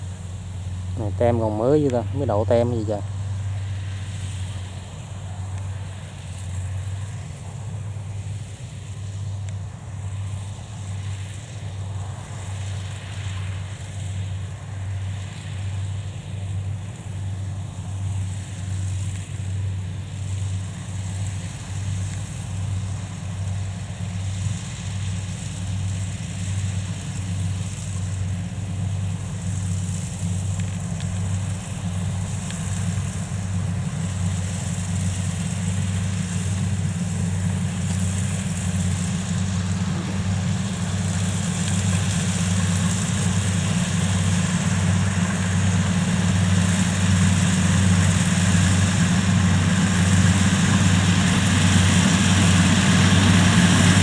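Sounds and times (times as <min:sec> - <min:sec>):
combine harvester engine droning: 0:00.0 - 0:54.0.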